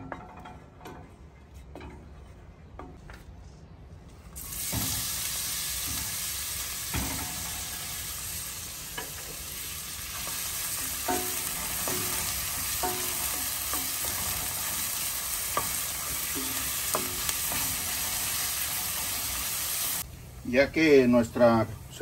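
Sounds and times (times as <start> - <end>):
onion sizzling in hot fat: 4.4 - 22.0.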